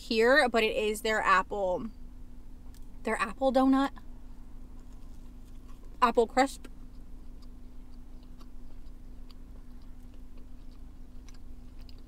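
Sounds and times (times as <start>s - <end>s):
steady low hum: 0.0s - 12.0s
person chewing: 4.7s - 6.0s, 6.6s - 12.0s.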